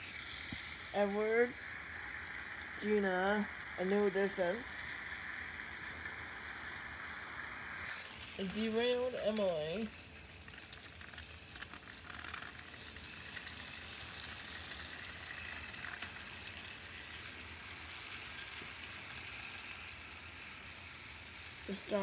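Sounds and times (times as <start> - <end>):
toy train motor whir: 0.0 - 22.0
toy train wheel rattle: 0.0 - 22.0.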